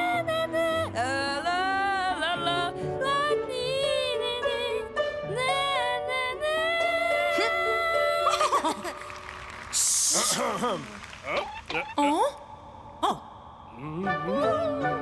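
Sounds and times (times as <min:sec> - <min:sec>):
cartoon boy singing: 0:03.2 - 0:08.2, 0:13.8 - 0:15.0.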